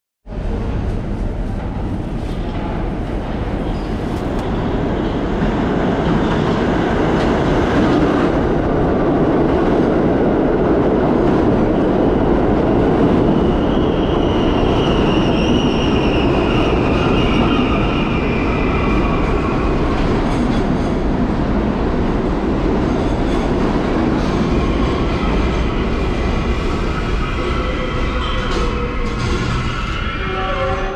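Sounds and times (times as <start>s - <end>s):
train rumbling on rails: 0.2s - 30.9s
train squealing: 3.5s - 5.2s, 13.2s - 21.0s, 24.2s - 30.9s.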